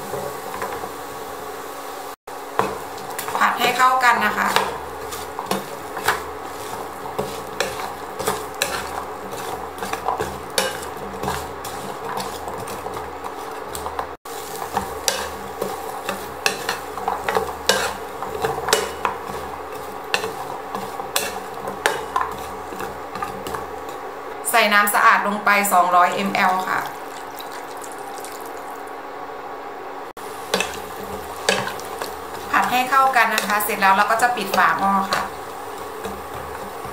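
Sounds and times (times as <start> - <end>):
garlic sizzling in oil: 0.0 - 29.1, 30.0 - 36.9
spatula scraping frying pan: 2.4 - 24.2, 30.2 - 36.9.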